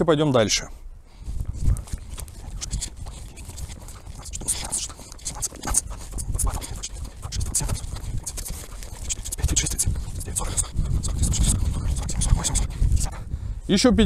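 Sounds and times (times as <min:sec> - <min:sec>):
wind rumbling on microphone: 0:00.9 - 0:14.0
footsteps through grass: 0:01.2 - 0:10.2
jacket rubbing on microphone: 0:01.2 - 0:13.3.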